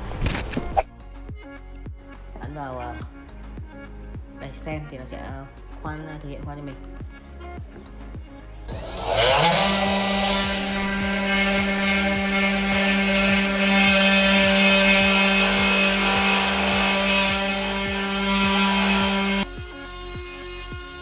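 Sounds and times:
spindle motor high whine: 0:08.7 - 0:21.0.

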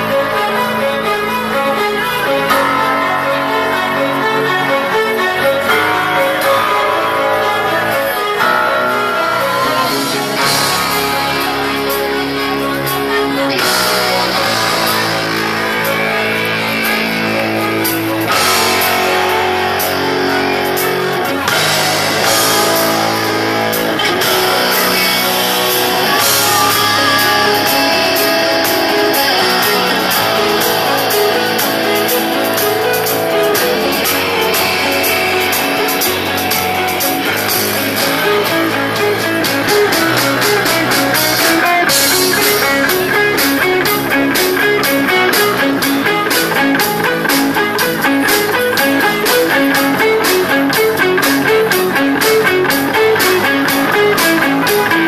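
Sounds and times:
bass guitar: 0:00.0 - 0:55.0
electric guitar: 0:00.0 - 0:55.0
drums and cymbals: 0:09.8 - 0:55.0.

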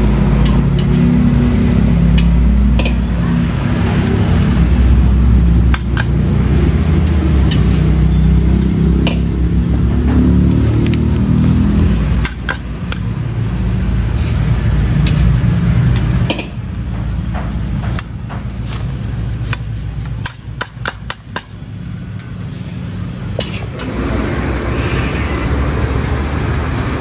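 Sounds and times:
road traffic rumble: 0:00.0 - 0:27.0
metal ladle scraping and tapping: 0:07.4 - 0:07.9.

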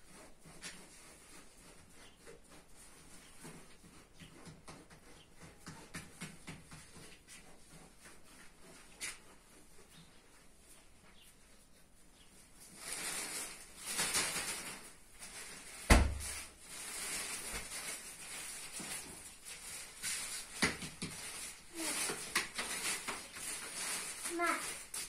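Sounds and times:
plastic bag rustling: 0:12.4 - 0:25.0.

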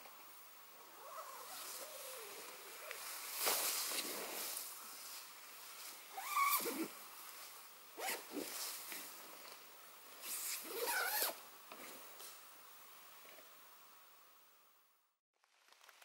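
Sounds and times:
tent zipper rasping: 0:06.1 - 0:06.9, 0:08.0 - 0:08.6, 0:10.2 - 0:11.4.

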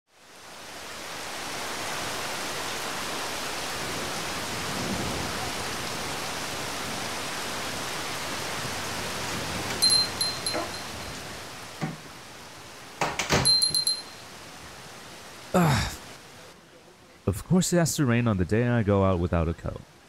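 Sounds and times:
steady rain: 0:00.1 - 0:20.0
high bell-like ring: 0:09.8 - 0:11.2, 0:13.4 - 0:14.2.

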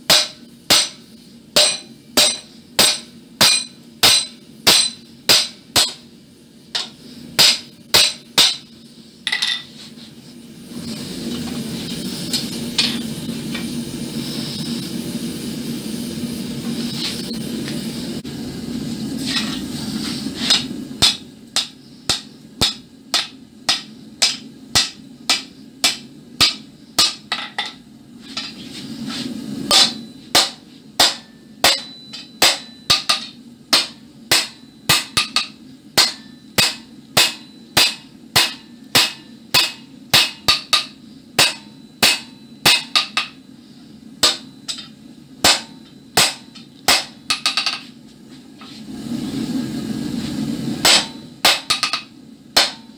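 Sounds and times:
hammer ringing on anvil: 0:01.6 - 0:06.0, 0:29.7 - 0:43.4, 0:44.2 - 0:47.8.

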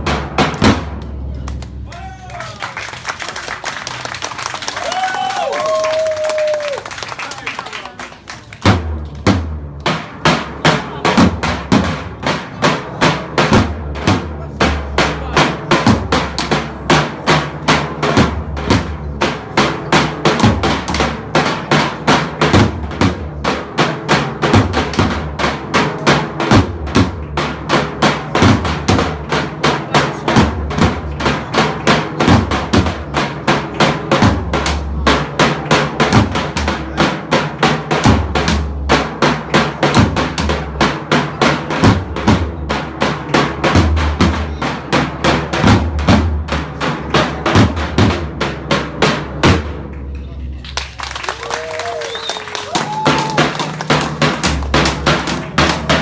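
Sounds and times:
drums beaten in fast rhythm: 0:00.0 - 0:56.0.

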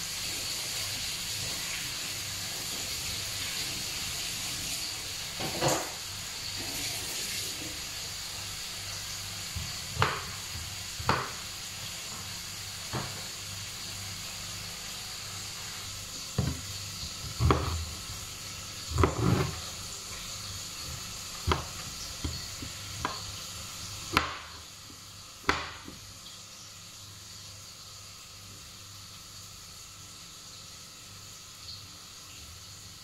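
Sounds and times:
steady high hiss: 0:00.0 - 0:33.0
knife chopping on wooden board: 0:09.5 - 0:11.4, 0:16.4 - 0:17.9, 0:18.8 - 0:19.7, 0:20.8 - 0:23.4, 0:24.0 - 0:24.6, 0:25.4 - 0:26.0.

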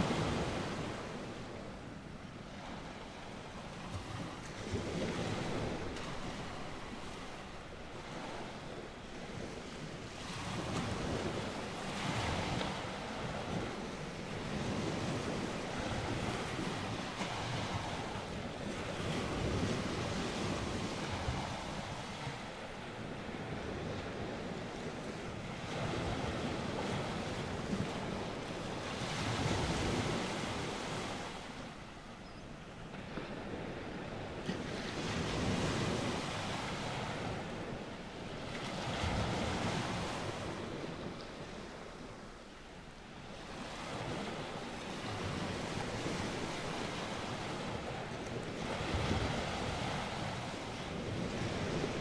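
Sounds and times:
ocean waves: 0:00.0 - 0:52.0.

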